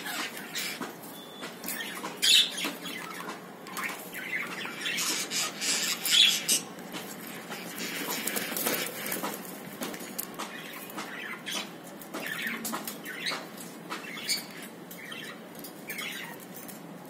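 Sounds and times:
wings flapping: 6.9 - 11.2.

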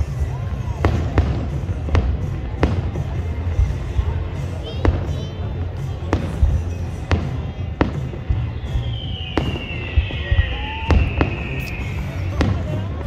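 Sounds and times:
fireworks bangs: 0.0 - 13.0
high whistle gliding down: 8.6 - 12.4.

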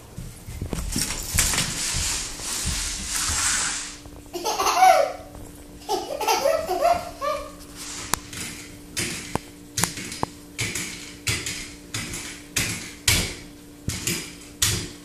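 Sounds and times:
even hissing noise: 0.0 - 8.4
toddler giggling: 4.3 - 7.6.

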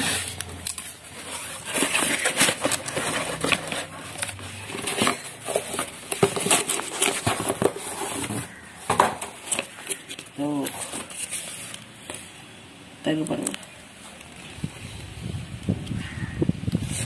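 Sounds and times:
cardboard and tape crackling: 0.0 - 12.3.

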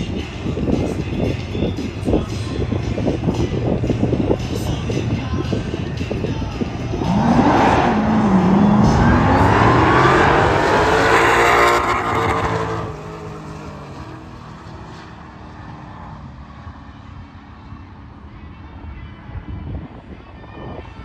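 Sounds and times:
cars accelerating on drag strip: 5.6 - 18.3.

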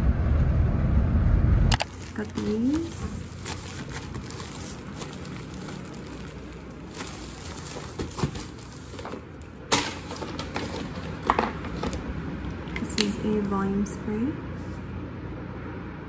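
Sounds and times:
plastic packs crinkling: 1.7 - 13.2.

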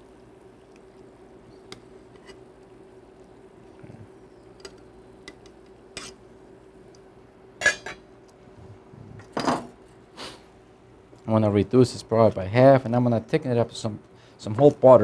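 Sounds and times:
pot lid clanking onto pan: 7.6 - 8.0.

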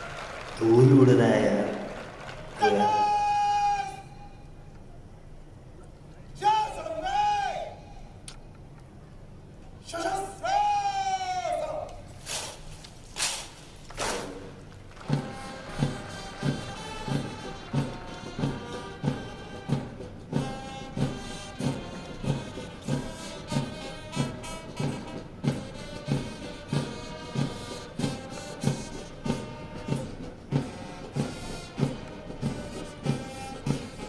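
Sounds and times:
military band music: 0.0 - 4.7, 14.0 - 34.0.

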